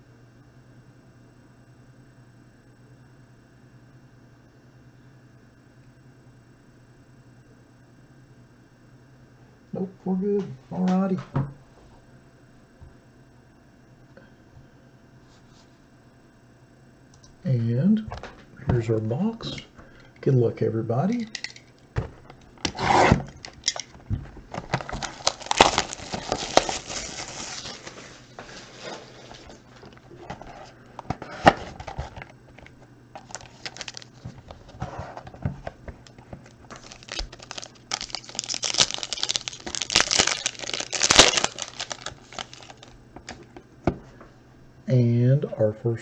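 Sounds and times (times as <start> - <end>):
cardboard and foil rustling: 21.4 - 43.5
foil wrapper tearing: 22.6 - 30.2, 33.1 - 34.4, 36.1 - 43.4.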